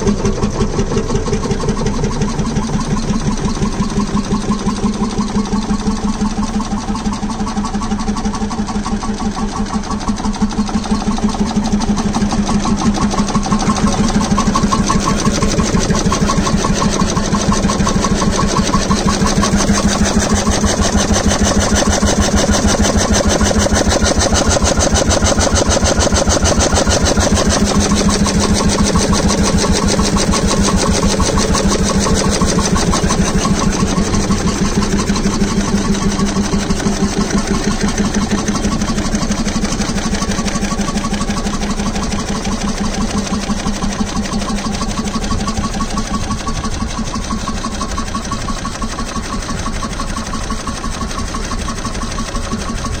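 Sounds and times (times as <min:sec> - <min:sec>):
stationary engine running: 0:00.0 - 0:53.0.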